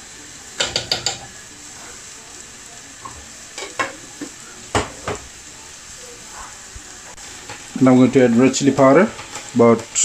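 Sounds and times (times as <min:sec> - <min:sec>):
food sizzling in a pan: 0:00.0 - 0:10.0
metal spoon clinking on pan: 0:00.6 - 0:01.3.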